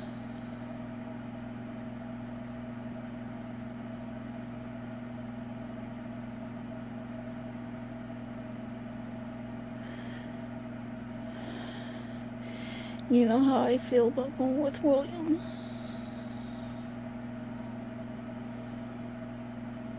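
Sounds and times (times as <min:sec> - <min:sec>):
small motor humming: 0:14.9 - 0:17.5.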